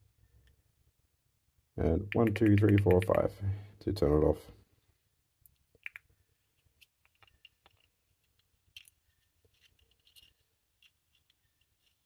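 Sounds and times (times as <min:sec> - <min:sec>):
flashlight housing clicks and rubbing: 0:06.5 - 0:12.0.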